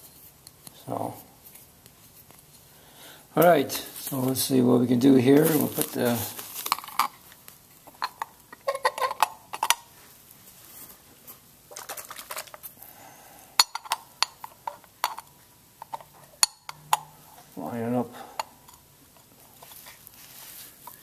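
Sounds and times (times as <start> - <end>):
glass lens clinking: 13.6 - 17.2.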